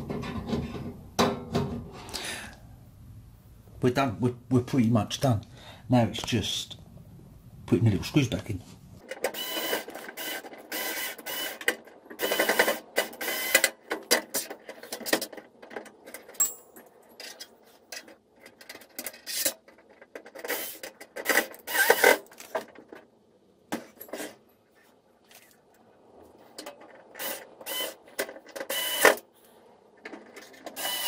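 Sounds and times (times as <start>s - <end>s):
electric screwdriver driving screws: 27.2s - 28.0s, 28.7s - 29.2s, 30.8s - 31.0s.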